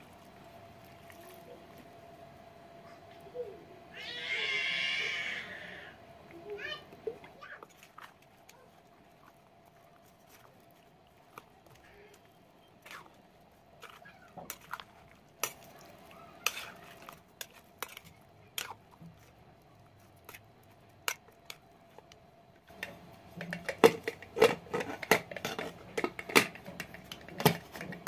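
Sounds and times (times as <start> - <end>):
metal spoon scraping a pot: 16.4 - 18.8, 22.7 - 28.0
pot lid metal clatter: 22.8 - 28.0.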